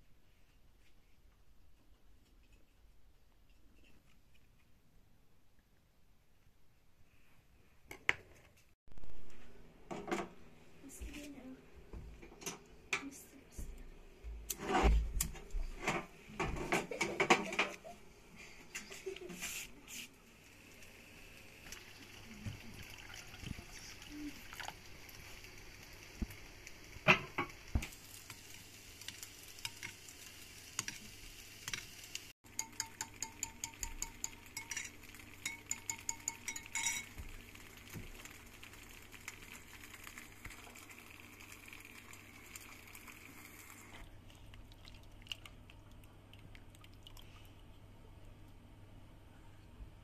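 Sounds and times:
water pouring into a bowl: 0:21.6 - 0:26.1, 0:33.6 - 0:47.7
metal spoon clinking in a bowl: 0:32.5 - 0:37.2.

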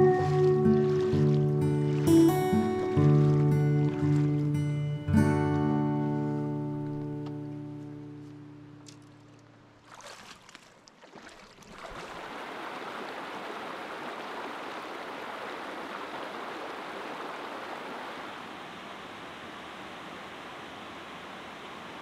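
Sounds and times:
strummed acoustic guitar chord: 0:00.0 - 0:08.7
stream rushing over rocks: 0:11.8 - 0:22.0.

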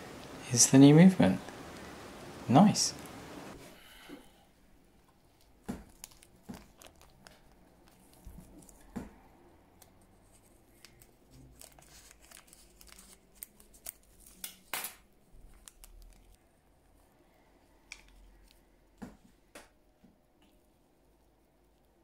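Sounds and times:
plastic bag crinkling: 0:05.3 - 0:08.9, 0:09.8 - 0:14.7, 0:15.3 - 0:16.4.

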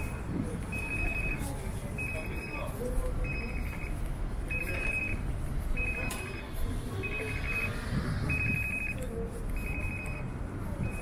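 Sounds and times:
street traffic hum: 0:00.0 - 0:11.0.

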